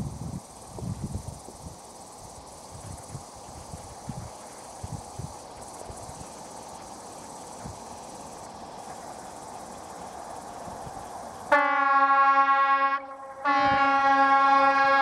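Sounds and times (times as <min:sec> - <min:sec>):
background hiss: 0:00.0 - 0:15.0
insects: 0:00.0 - 0:15.0
train horn blast: 0:11.5 - 0:15.0.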